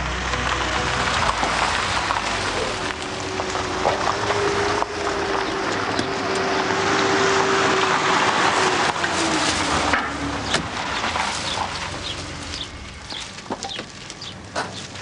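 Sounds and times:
car engine and tyre noise: 0.0 - 15.0
birds chirping: 4.4 - 7.4, 10.2 - 15.0.

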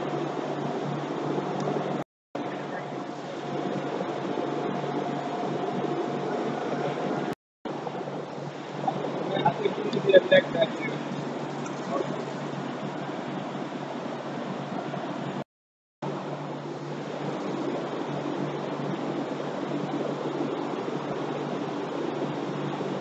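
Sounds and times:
machine humming and rushing: 0.0 - 15.4.

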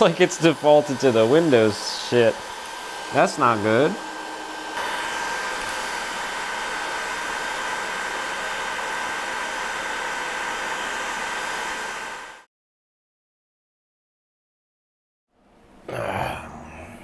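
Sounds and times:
cooling fans whirring with whine: 0.0 - 12.4.

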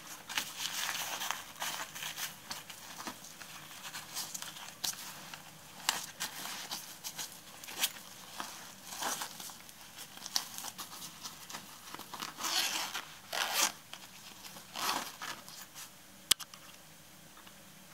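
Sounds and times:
hand rustling nylon fabric: 0.0 - 16.0.

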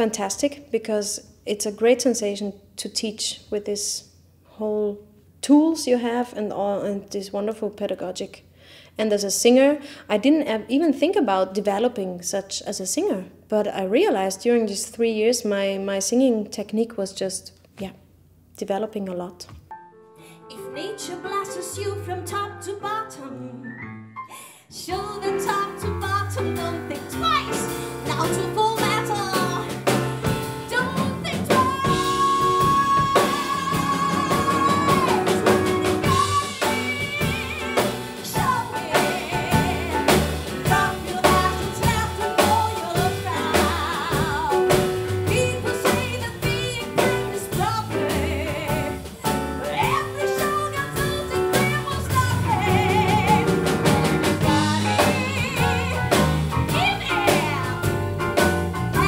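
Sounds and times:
woman singing: 20.4 - 23.6, 24.3 - 58.1
bass line: 24.8 - 59.0
drum kit: 24.9 - 59.0.

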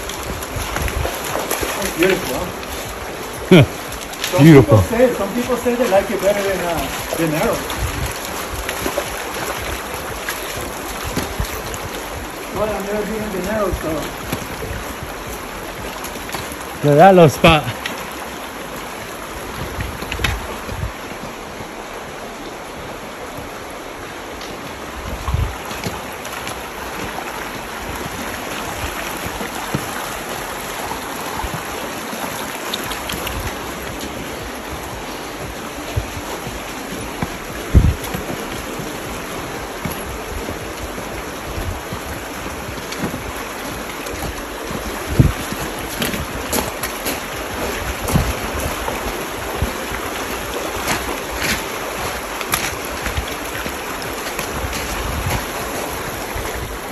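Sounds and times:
creek running over gravel: 0.0 - 56.9
low thumps: 33.3 - 44.5.

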